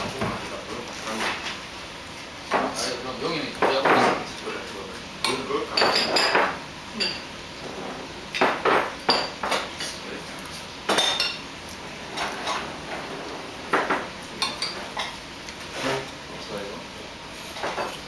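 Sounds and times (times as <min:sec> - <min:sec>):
utensils clinking on dishes: 0:05.2 - 0:07.3, 0:08.3 - 0:10.0, 0:10.9 - 0:11.5, 0:12.1 - 0:13.1, 0:13.7 - 0:15.2, 0:17.6 - 0:18.0.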